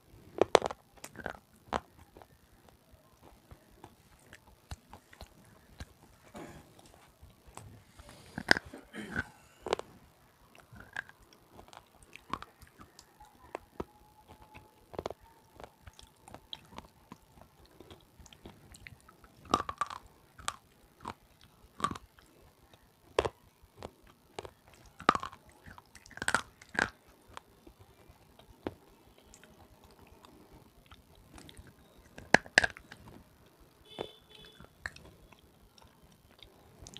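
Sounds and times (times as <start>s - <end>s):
biting and chewing crunches: 0.1s - 36.9s.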